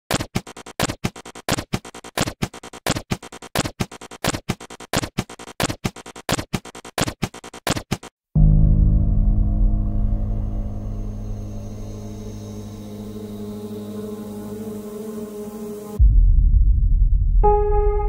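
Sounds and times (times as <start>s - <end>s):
deep low boom: 8.4s - 11.4s, 16.0s - 18.0s.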